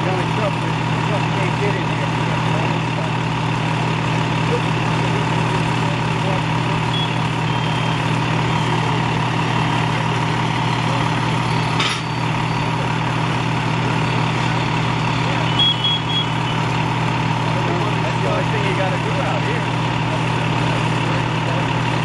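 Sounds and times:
constant whine: 0:00.0 - 0:22.0
diesel engine running: 0:00.0 - 0:22.0
short high beeps: 0:06.9 - 0:08.0, 0:15.4 - 0:16.6.

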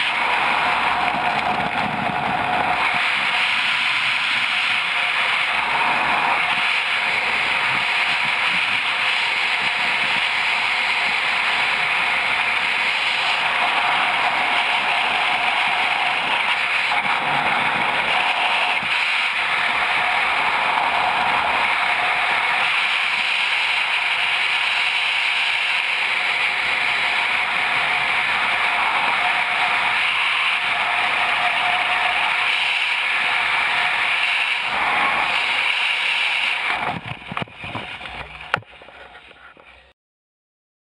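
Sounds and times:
wind buffeting microphone: 0:00.3 - 0:12.8, 0:36.7 - 0:38.6.

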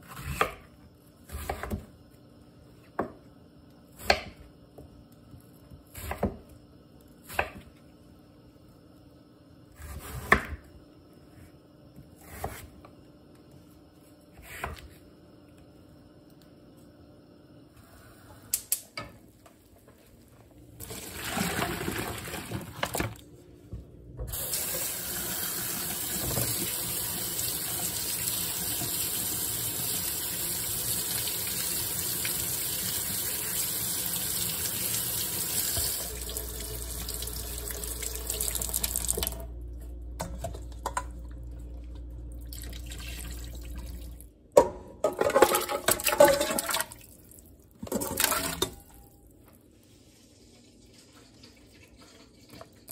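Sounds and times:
faucet running into sink: 0:24.3 - 0:39.4.

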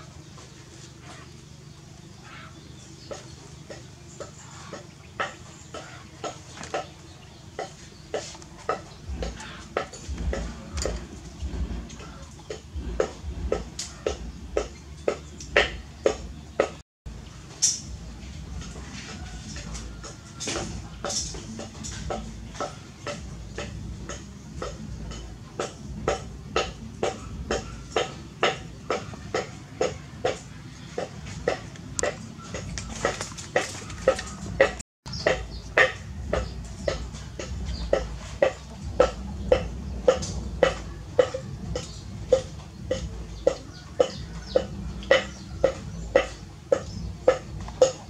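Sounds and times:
low background rumble: 0:00.0 - 0:33.0, 0:33.9 - 0:48.0
low rumble: 0:08.9 - 0:16.4
clicking and clattering on basket: 0:18.6 - 0:48.0.

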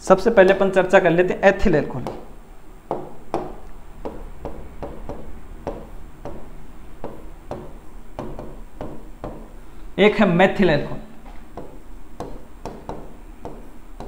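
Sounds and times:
writing taps on a board: 0:02.0 - 0:02.2, 0:07.0 - 0:09.5, 0:11.6 - 0:13.7.

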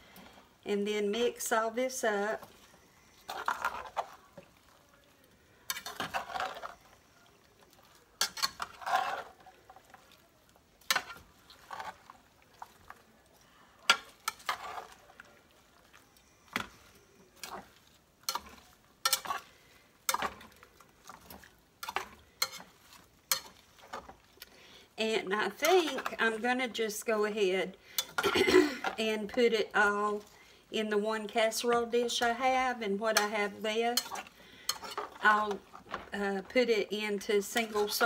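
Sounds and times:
spatula scraping a skillet: 0:02.0 - 0:04.4, 0:05.6 - 0:07.1, 0:08.2 - 0:10.2, 0:10.8 - 0:13.1, 0:13.8 - 0:24.4, 0:25.4 - 0:30.4, 0:31.4 - 0:38.0.

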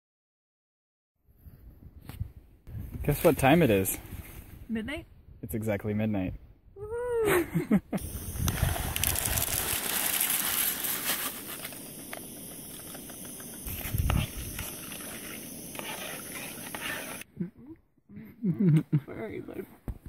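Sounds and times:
packet crinkling: 0:08.0 - 0:17.2
camp stove burner hissing: 0:08.0 - 0:17.3
spoon stirring: 0:12.6 - 0:17.2.

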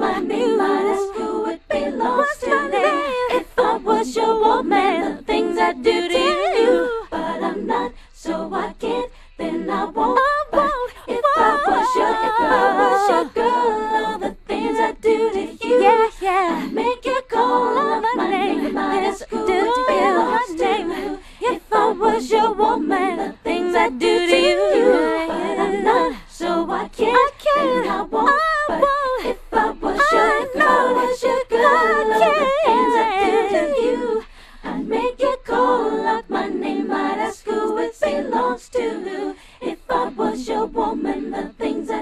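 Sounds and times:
woman singing layered vocals: 0:00.0 - 0:42.0.

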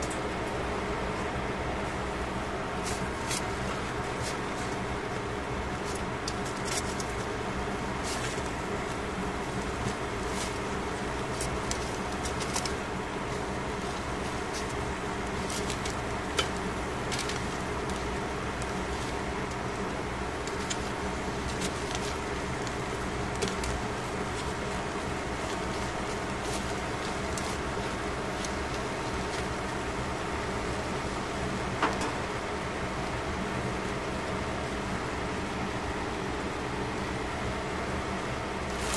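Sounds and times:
fan humming: 0:00.0 - 0:38.9
tongs clicking on aluminium foil: 0:14.0 - 0:24.7.

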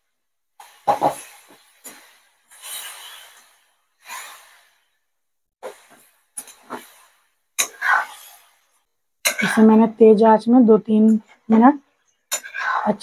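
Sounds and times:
spatula scraping metal pan: 0:07.6 - 0:08.6, 0:09.2 - 0:09.8, 0:12.3 - 0:13.0.

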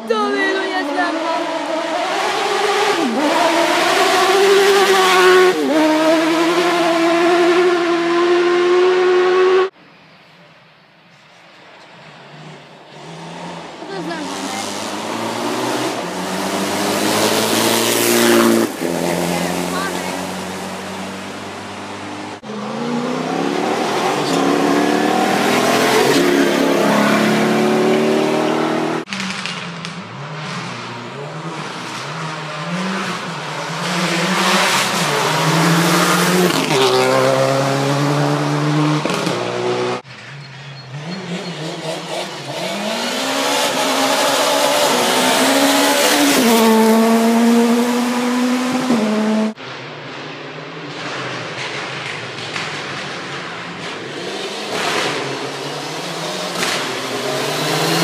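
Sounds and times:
rally car engine revving: 0:00.0 - 0:09.8, 0:12.3 - 0:58.0.

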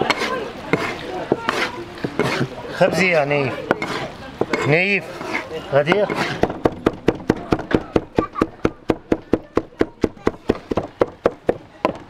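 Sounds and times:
knife chopping on wooden board: 0:03.7 - 0:12.0.

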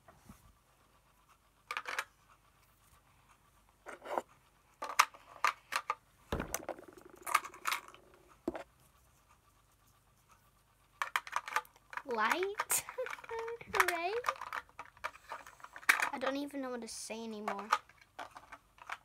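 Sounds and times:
toy pieces rattling and clicking: 0:01.7 - 0:02.1, 0:04.8 - 0:08.2, 0:11.0 - 0:16.6, 0:17.3 - 0:19.0
thump: 0:06.3 - 0:07.2.

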